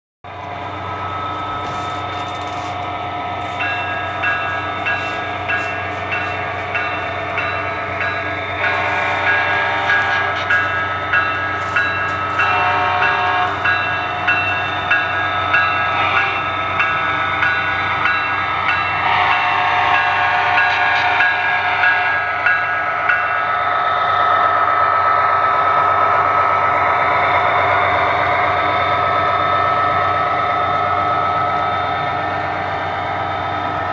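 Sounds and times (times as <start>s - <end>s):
diesel locomotive engine running: 0.2s - 33.9s
train horn: 8.4s - 16.9s, 18.8s - 22.5s.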